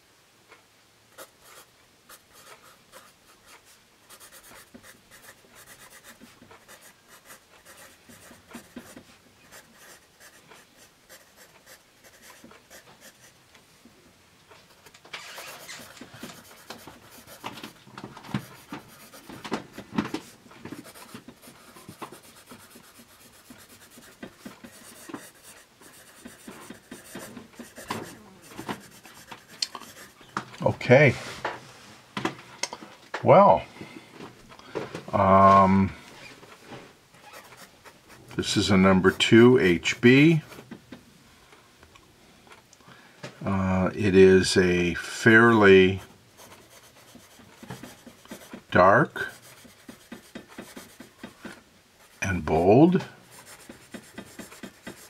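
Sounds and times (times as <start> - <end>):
pencil scratching on paper: 1.2 - 13.4, 15.2 - 30.2, 37.2 - 40.0, 45.3 - 52.4, 53.0 - 55.0.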